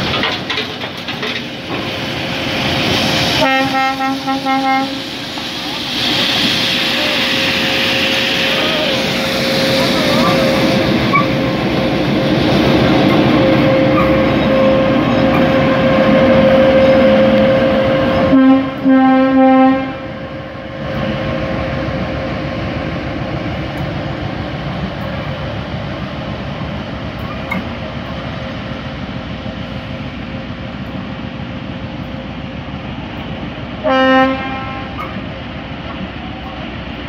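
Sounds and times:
diesel locomotive engine drone: 0:00.0 - 0:37.0
locomotive horn blasts: 0:03.4 - 0:05.0, 0:17.2 - 0:20.1, 0:33.8 - 0:35.0.

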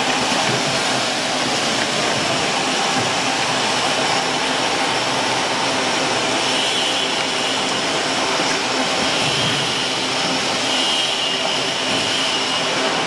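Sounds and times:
bottling machine whirring: 0:00.0 - 0:13.0.

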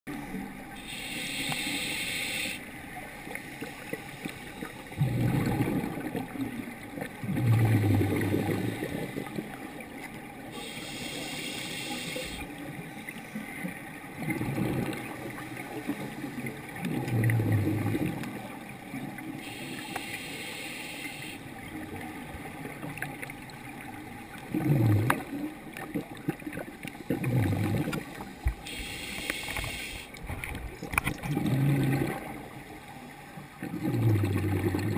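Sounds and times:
hissing regulator inhalation: 0:00.8 - 0:02.6, 0:10.6 - 0:12.4, 0:19.4 - 0:21.4, 0:28.6 - 0:30.1
exhaled bubbles bursting: 0:05.0 - 0:09.5, 0:14.2 - 0:15.3, 0:16.8 - 0:18.5, 0:24.4 - 0:28.2, 0:30.8 - 0:32.5, 0:33.6 - 0:34.9.

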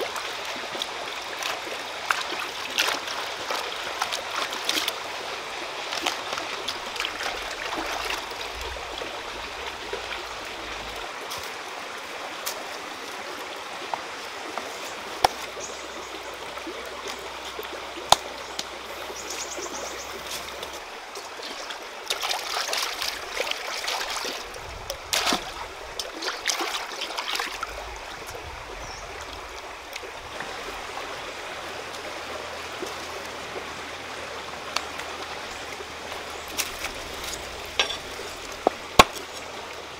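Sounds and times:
stream running over rocks: 0:00.0 - 0:39.9.

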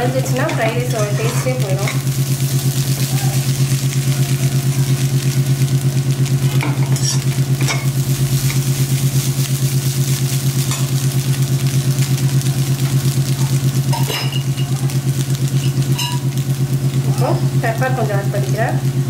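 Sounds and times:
fried rice sizzling in a pan: 0:00.0 - 0:19.0
low mechanical hum: 0:00.0 - 0:19.0
spatula scraping a pan: 0:00.4 - 0:02.1.

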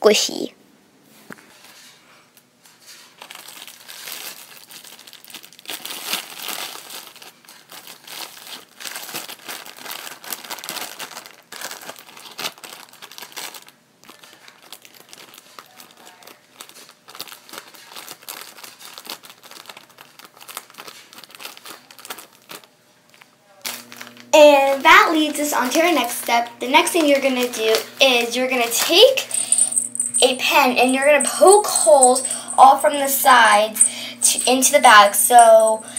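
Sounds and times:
paper bag crinkling: 0:02.9 - 0:30.2.

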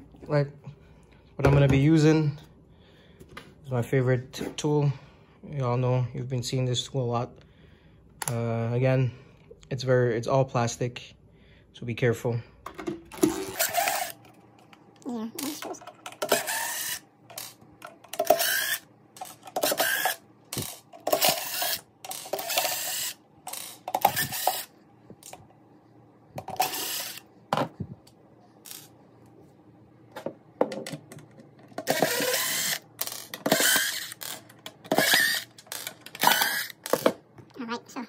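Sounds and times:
cordless power driver: 0:13.2 - 0:14.2, 0:15.6 - 0:25.4, 0:26.5 - 0:27.2, 0:31.8 - 0:37.2.

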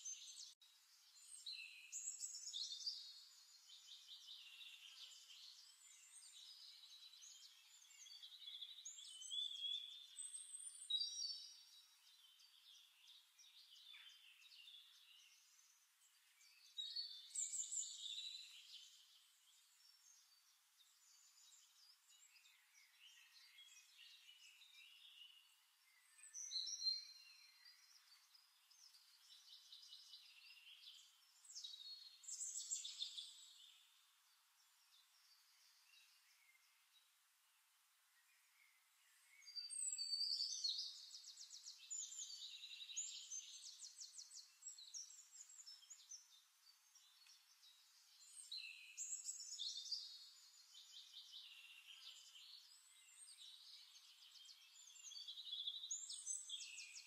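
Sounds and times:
small birds chirping: 0:00.0 - 0:57.0.

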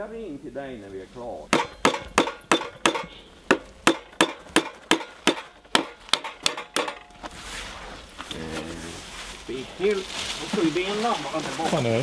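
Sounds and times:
rapid sharp knocks: 0:01.5 - 0:07.1.

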